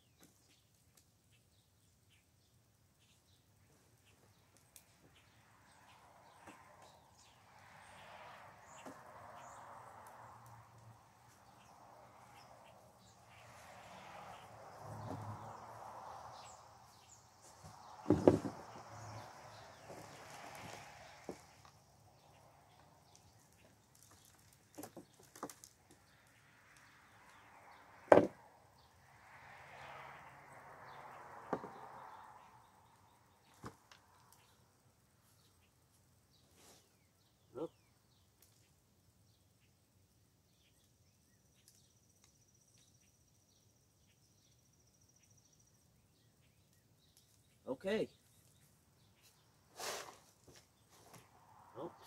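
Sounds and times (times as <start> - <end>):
loud thump: 18.0 - 18.7.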